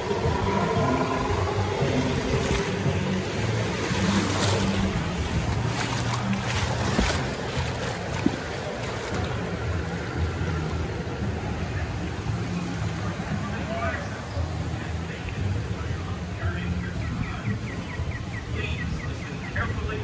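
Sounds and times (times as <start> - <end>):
low steady hum: 0.0 - 13.6
water rushing and sloshing: 0.0 - 20.0.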